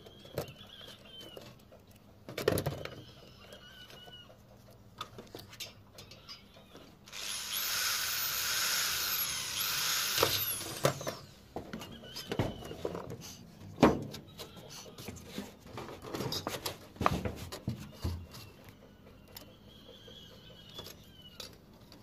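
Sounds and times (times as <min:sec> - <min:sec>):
cordless drill boring sheet metal: 0:07.1 - 0:11.3.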